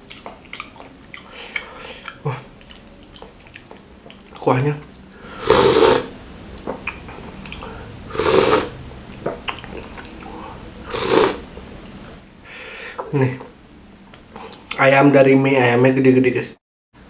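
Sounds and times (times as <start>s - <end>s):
chewing: 0.0s - 5.2s, 6.6s - 7.8s, 8.9s - 10.4s
mouth clicks: 0.1s - 7.7s
man slurping noodles: 5.3s - 6.1s, 7.5s - 8.8s, 10.3s - 11.4s.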